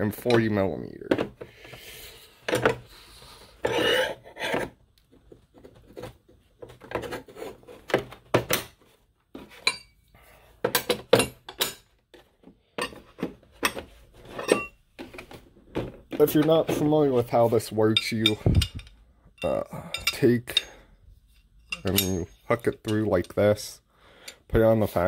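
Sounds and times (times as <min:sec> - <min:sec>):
wrenches scraping in case: 0:03.6 - 0:04.8
metal wrenches clinking: 0:09.5 - 0:10.0, 0:12.8 - 0:15.3, 0:16.2 - 0:23.7.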